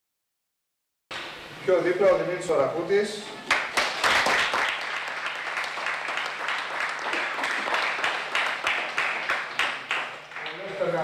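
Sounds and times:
small group applauding: 3.4s - 11.0s.

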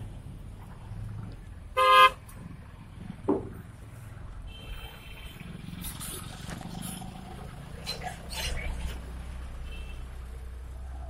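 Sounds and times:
low traffic rumble: 0.0s - 11.0s
vehicle horn toot: 1.8s - 2.2s.

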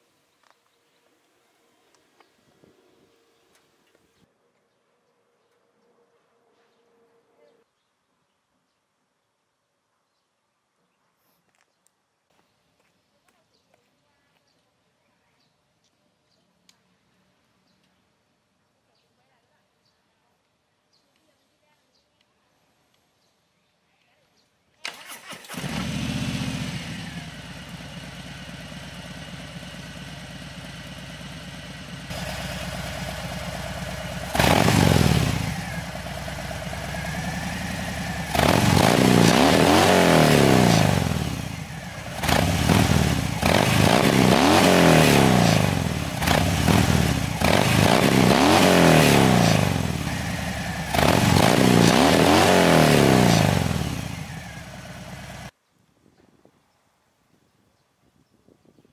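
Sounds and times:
motorcycle engine revving: 24.9s - 55.5s.

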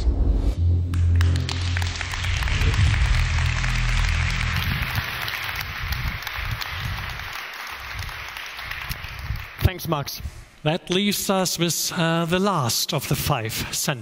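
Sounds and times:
low musical drone: 0.0s - 7.1s
audience applauding: 0.9s - 9.9s.

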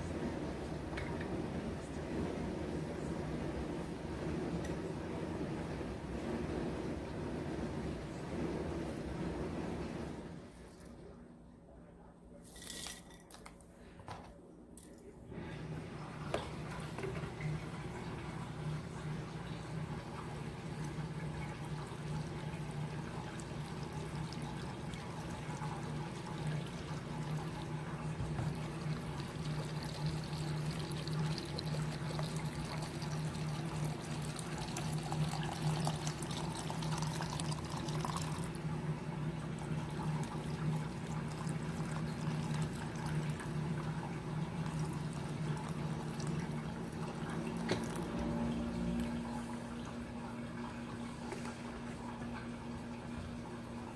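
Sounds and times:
liquid pouring into glass jars: 28.5s - 38.6s.

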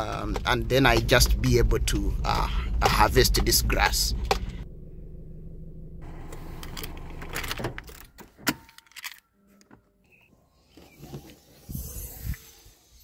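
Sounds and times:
car engine idling: 0.0s - 8.2s
keys jangling: 6.7s - 9.3s.

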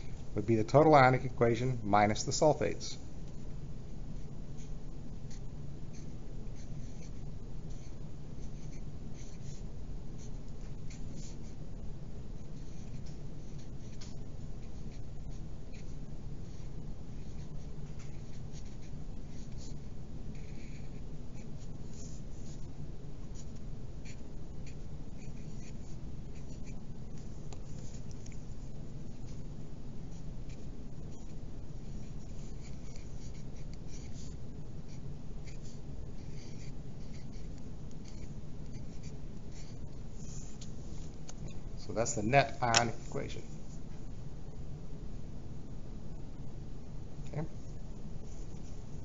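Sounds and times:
steady low hum: 0.0s - 49.0s
pencil writing on paper: 4.2s - 11.6s, 12.4s - 22.7s, 23.3s - 29.4s, 30.1s - 40.8s.

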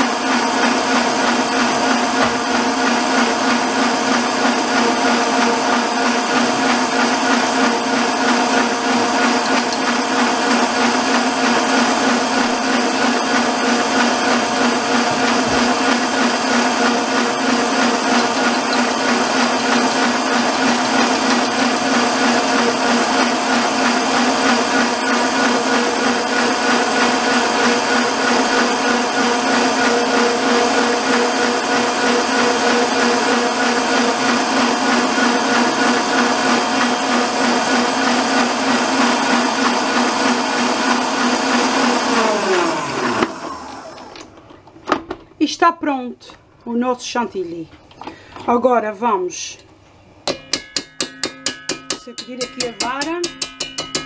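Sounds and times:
stand mixer whirring: 0.0s - 44.4s.

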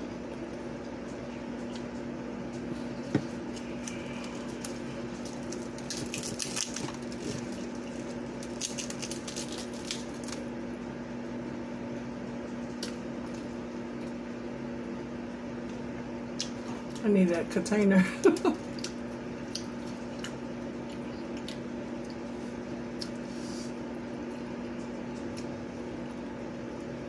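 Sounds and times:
electric fan humming: 0.0s - 27.0s
crisp fried food crackling: 0.4s - 10.6s
chewing: 18.6s - 22.2s.

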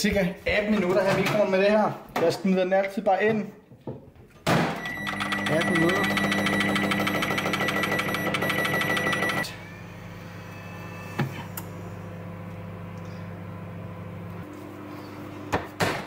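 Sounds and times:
microwave oven humming: 4.8s - 16.0s.

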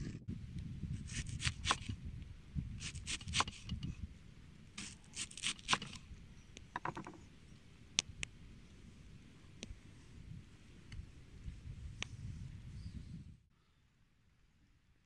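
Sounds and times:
knife slicing onion: 1.0s - 1.9s, 2.8s - 3.7s
sharp knocks on wood: 6.7s - 7.2s.

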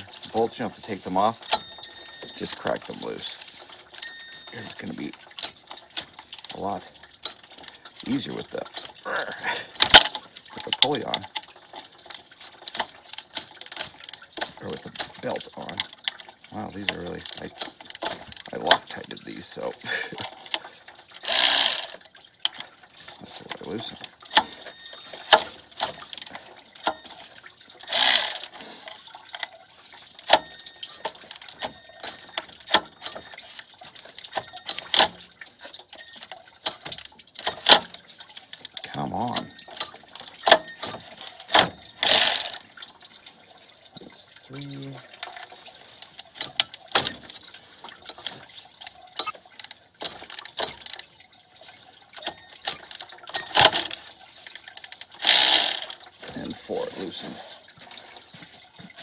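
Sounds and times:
ratchet wrench clicking: 21.2s - 22.0s, 27.9s - 28.5s, 40.2s - 42.6s, 54.5s - 56.0s
wrench clicking and knocking on bolts: 21.2s - 22.0s, 27.9s - 28.5s, 30.3s - 33.2s, 38.6s - 42.6s, 48.1s - 48.4s, 52.6s - 56.0s.

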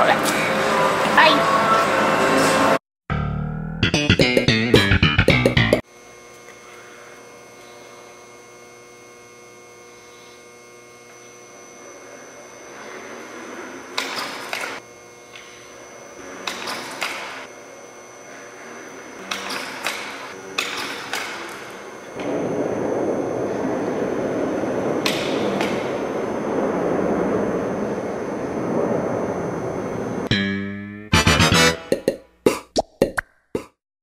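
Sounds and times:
music: 1.7s - 5.8s, 30.3s - 32.1s
steady electrical hum: 5.8s - 32.4s.

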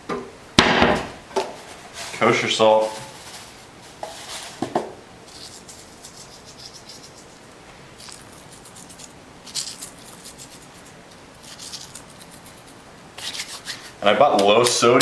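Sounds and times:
salt grains pattering: 5.3s - 7.4s, 8.0s - 12.7s.

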